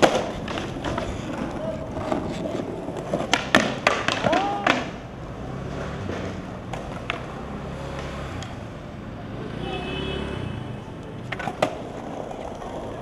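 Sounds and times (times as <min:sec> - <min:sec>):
skateboard clacking on pavement: 0:00.0 - 0:05.2, 0:06.0 - 0:08.6, 0:10.9 - 0:13.0
skateboard wheels rumbling: 0:00.0 - 0:13.0.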